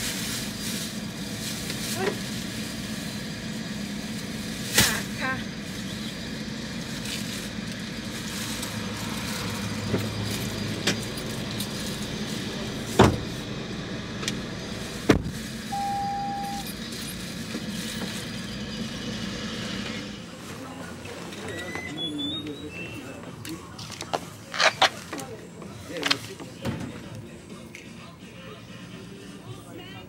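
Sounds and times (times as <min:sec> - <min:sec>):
road vehicle noise: 0:00.0 - 0:30.0
short steady beep: 0:15.7 - 0:16.6.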